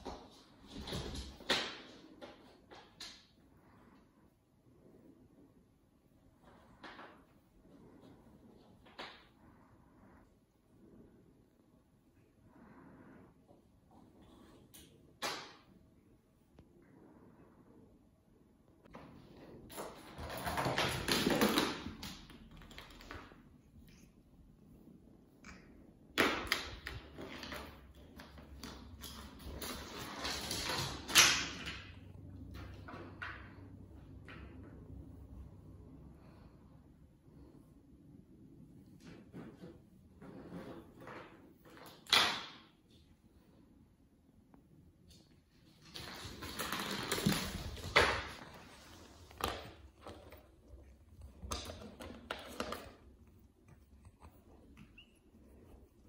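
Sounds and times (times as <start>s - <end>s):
plastic bottle skittering on floor: 19.7s - 22.2s, 45.8s - 50.2s.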